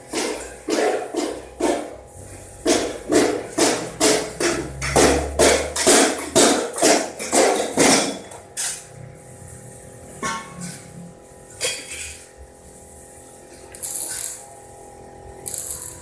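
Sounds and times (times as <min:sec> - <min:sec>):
hammer striking steel beam: 0:02.6 - 0:08.2.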